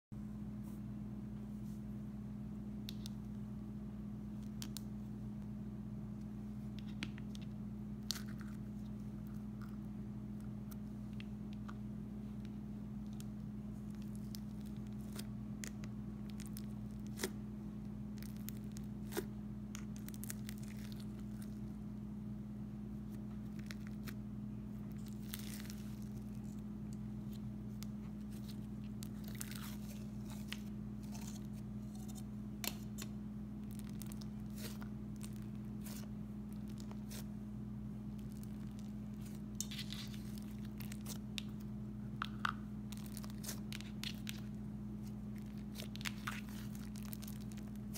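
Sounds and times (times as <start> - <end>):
low hum: 0.2 - 47.9
slime squishing: 6.7 - 22.0, 23.0 - 37.4, 38.0 - 47.9
slime tearing: 18.1 - 21.6, 24.9 - 32.2, 33.6 - 37.3, 38.1 - 41.6, 42.9 - 47.9.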